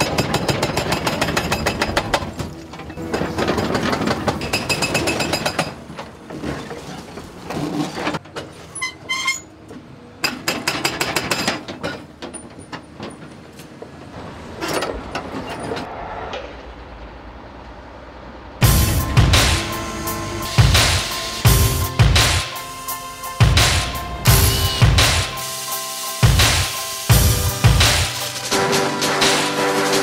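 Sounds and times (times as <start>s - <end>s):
hydraulic breaker hammering concrete: 0.0s - 2.4s
broken concrete clattering: 0.0s - 8.6s
excavator engine running: 12.8s - 30.0s.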